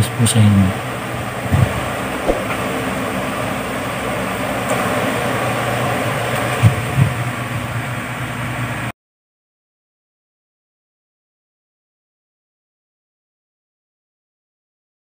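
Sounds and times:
background hum and hiss: 0.0 - 8.9
soft low thumps: 1.5 - 2.7.

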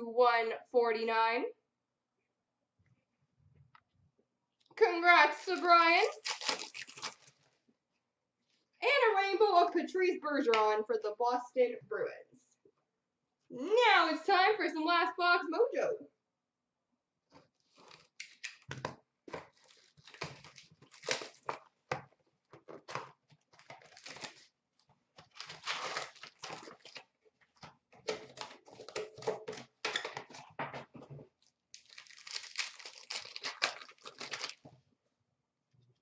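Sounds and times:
paper and foil rustling: 5.4 - 7.4, 25.2 - 27.1, 31.8 - 34.6.

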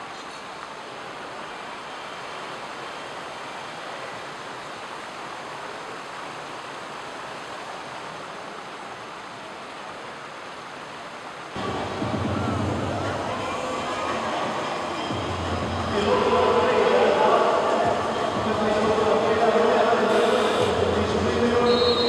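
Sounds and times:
shopping mall ambience: 11.6 - 22.0
voices: 11.6 - 22.0.

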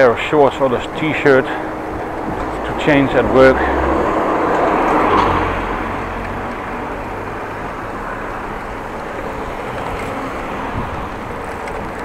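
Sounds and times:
road noise: 0.0 - 12.0
wind rushing on microphone: 9.0 - 12.0.

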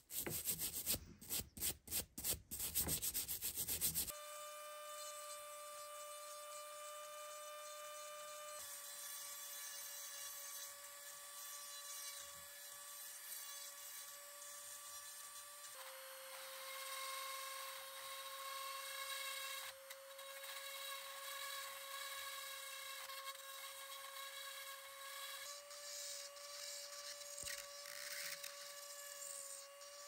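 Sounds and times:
rotary tool grinding metal: 17.6 - 30.0.

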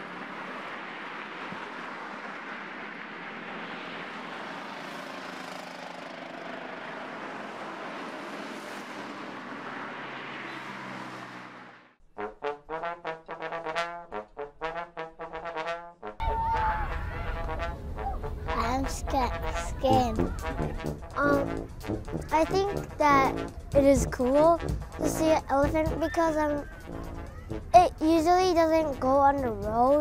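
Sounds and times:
road traffic: 0.0 - 12.0, 16.6 - 30.0
brass music: 12.0 - 27.8.

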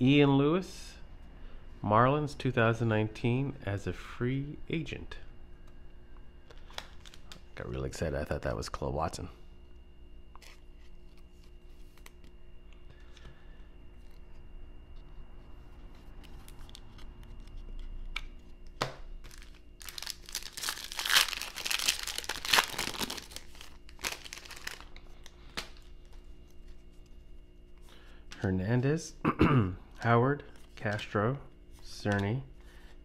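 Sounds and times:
trading cards handled: 10.3 - 27.8
plastic wrapper tearing: 19.2 - 25.9.

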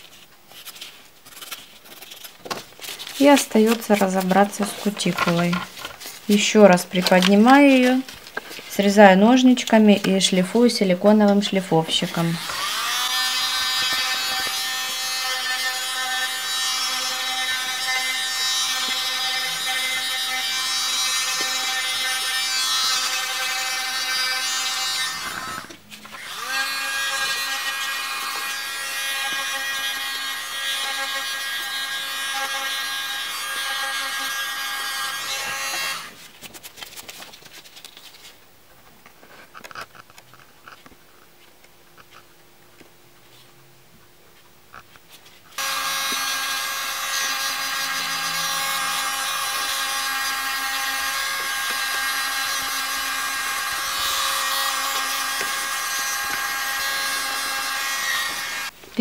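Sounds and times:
electric nail drill whining: 12.2 - 36.2, 45.6 - 58.7.

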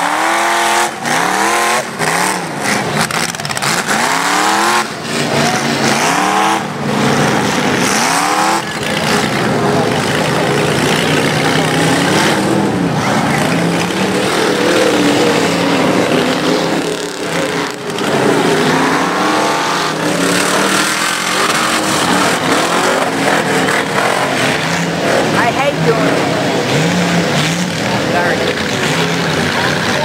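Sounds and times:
truck engine revving: 0.0 - 30.0.

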